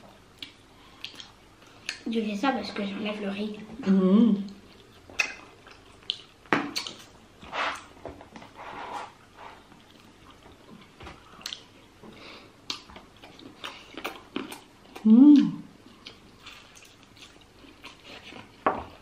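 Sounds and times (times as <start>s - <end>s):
chewing: 0.4s - 2.0s, 4.5s - 7.1s, 9.6s - 11.9s, 12.7s - 15.1s, 15.9s - 18.6s
lip smacks: 5.2s - 7.0s.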